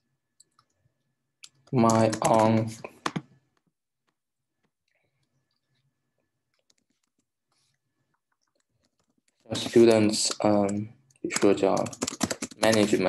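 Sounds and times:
keyboard typing clicks: 0:01.5 - 0:03.4, 0:08.4 - 0:13.0.

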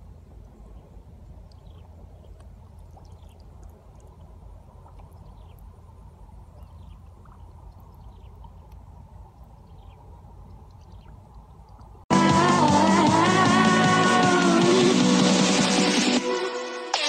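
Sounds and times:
fish splashing in water: 0:00.5 - 0:12.0.

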